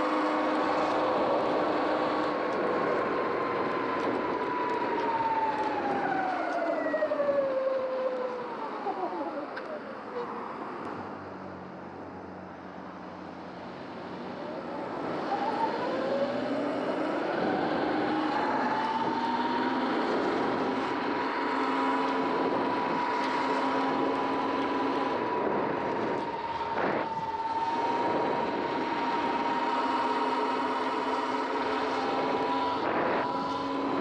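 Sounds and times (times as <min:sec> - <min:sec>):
wind and road noise: 0:00.0 - 0:34.0
electric motor whine: 0:14.6 - 0:34.0.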